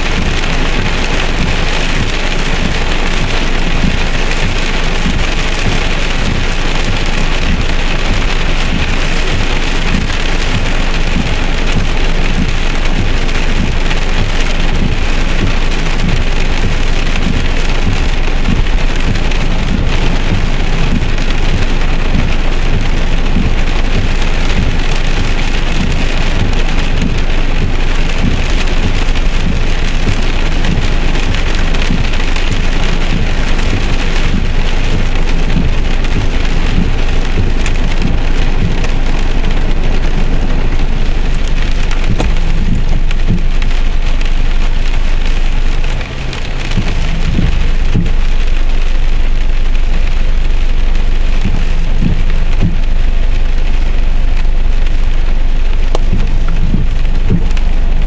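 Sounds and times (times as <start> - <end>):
heavy rain on car roof: 0.0 - 58.0.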